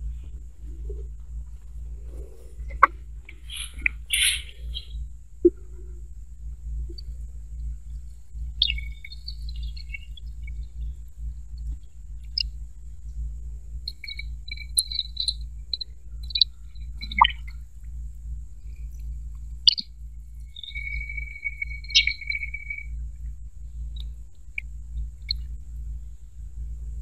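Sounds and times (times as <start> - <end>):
high insect drone: 0.0 - 27.0
low rumble: 0.0 - 27.0
bird chirps: 2.2 - 5.6, 8.5 - 11.1, 11.8 - 12.5, 13.8 - 17.6, 19.6 - 23.0.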